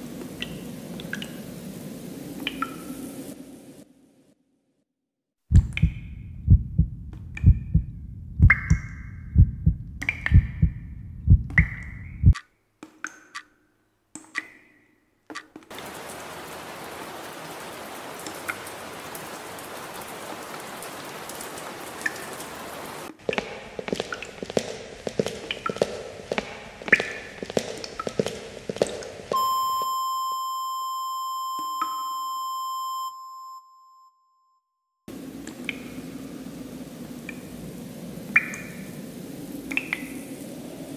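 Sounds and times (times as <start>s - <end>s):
steady hiss with faint ticks: 0.0s - 3.9s, 5.6s - 12.4s, 35.1s - 40.9s
heartbeat-like low thumping: 5.5s - 12.4s.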